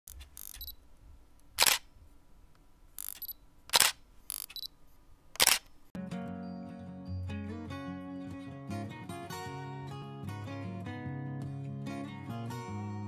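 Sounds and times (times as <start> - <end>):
loud camera shutter clicks: 0.1 - 0.7, 1.6 - 1.9, 3.0 - 4.7, 5.4 - 5.7.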